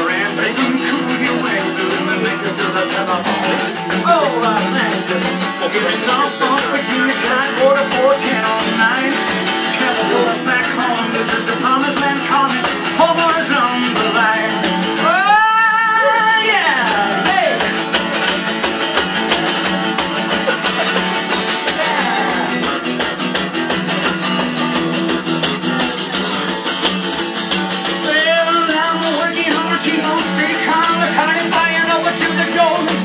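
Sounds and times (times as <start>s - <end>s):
person singing: 0.0s - 17.7s, 21.6s - 22.8s, 28.0s - 33.0s
acoustic guitar strumming: 0.0s - 33.0s.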